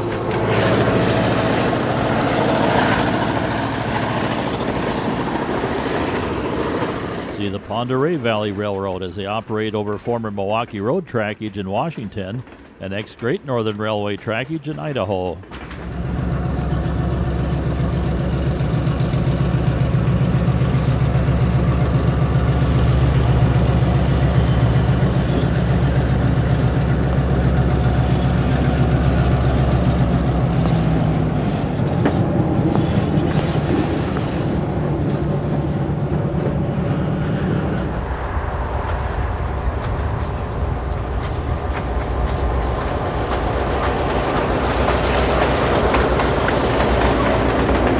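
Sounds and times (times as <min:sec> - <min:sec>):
locomotive diesel engine drone: 0:00.0 - 0:47.9.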